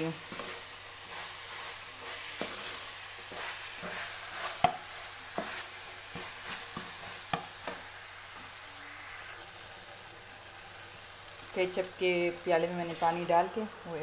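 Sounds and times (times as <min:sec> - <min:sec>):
minced chicken sizzling in pan: 0:00.0 - 0:14.0
spatula tapping and scraping pan: 0:00.2 - 0:07.9.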